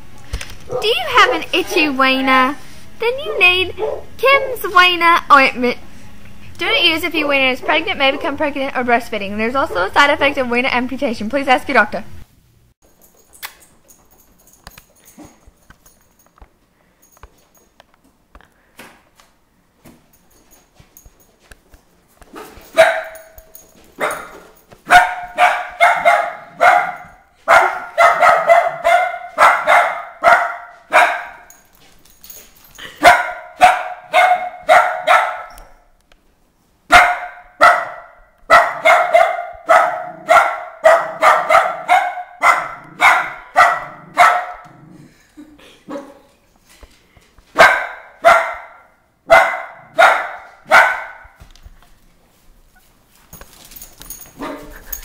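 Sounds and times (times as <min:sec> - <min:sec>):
dog barking: 0:00.7 - 0:02.0, 0:03.2 - 0:04.1, 0:22.3 - 0:23.4, 0:24.0 - 0:31.5, 0:33.0 - 0:35.7, 0:36.9 - 0:44.8, 0:45.9 - 0:46.3, 0:47.6 - 0:51.4, 0:54.4 - 0:54.8.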